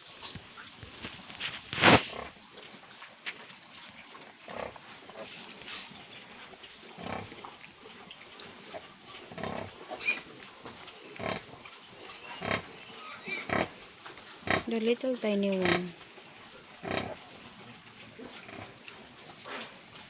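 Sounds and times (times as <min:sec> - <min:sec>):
sow grunting: 0:06.9 - 0:07.4, 0:08.6 - 0:10.3, 0:11.1 - 0:13.8, 0:14.4 - 0:14.8, 0:15.4 - 0:16.0, 0:16.8 - 0:17.2, 0:18.1 - 0:19.7
piglets squeaking: 0:09.4 - 0:10.3, 0:11.1 - 0:13.8.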